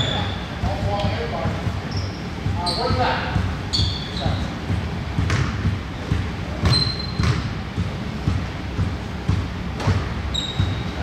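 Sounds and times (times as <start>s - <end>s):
sneakers squeaking: 0.0s - 11.0s
basketball bouncing on court: 4.7s - 10.9s.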